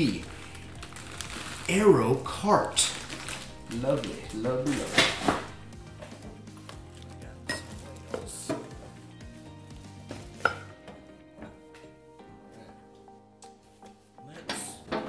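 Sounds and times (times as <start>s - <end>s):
plastic packaging crinkling: 0.0s - 5.7s.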